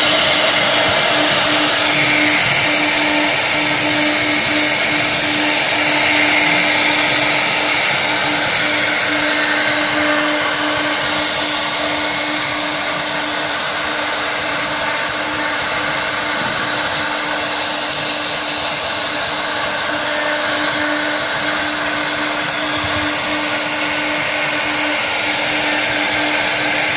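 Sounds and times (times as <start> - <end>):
cnc router routing wood: 0.0 - 26.9
steady machine hum: 0.0 - 26.9.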